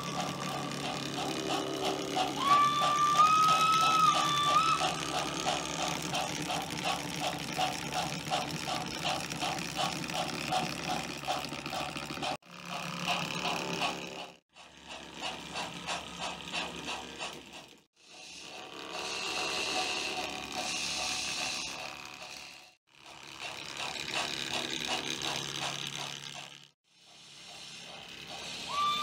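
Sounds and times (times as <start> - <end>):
whir with high tone: 0.0 - 11.7, 17.5 - 29.0
model train clicking on track: 0.0 - 29.0.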